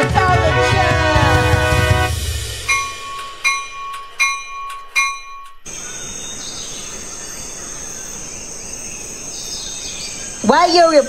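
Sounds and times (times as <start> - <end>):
bell-like dings: 2.7 - 5.8
crickets chirping: 2.7 - 11.0.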